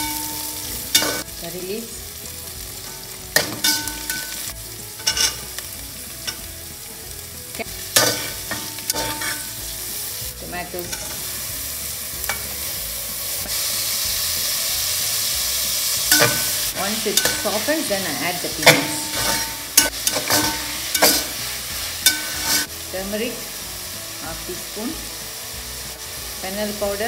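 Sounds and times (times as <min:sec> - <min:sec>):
vegetables sizzling in oil: 0:00.0 - 0:27.0
metal spatula knocking pot: 0:08.0 - 0:09.4, 0:16.1 - 0:17.7.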